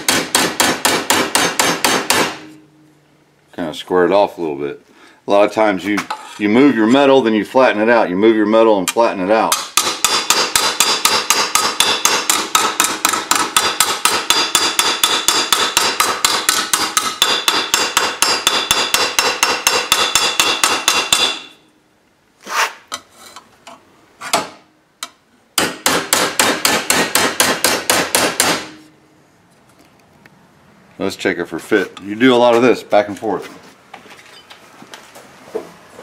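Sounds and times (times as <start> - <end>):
hammer beating sheet steel: 0.0 - 2.6, 9.5 - 21.6, 25.6 - 28.9.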